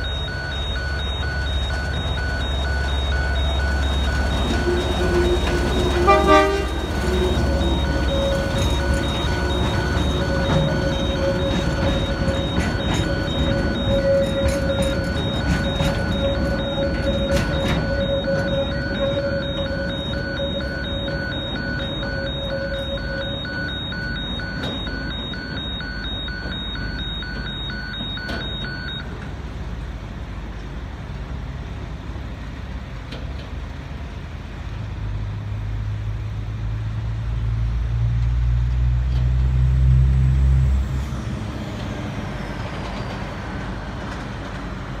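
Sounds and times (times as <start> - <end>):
level crossing warning bell: 0.0 - 29.2.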